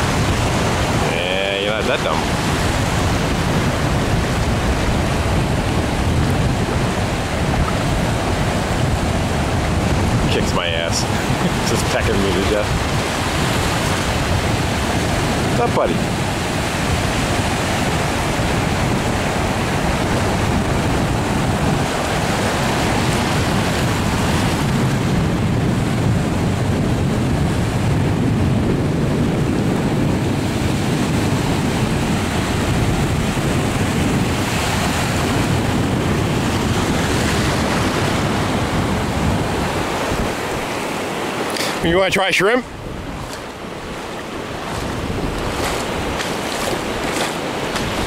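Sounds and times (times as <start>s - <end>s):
wind rumbling on microphone: 0.0s - 48.0s
small surf breaking: 39.8s - 48.0s.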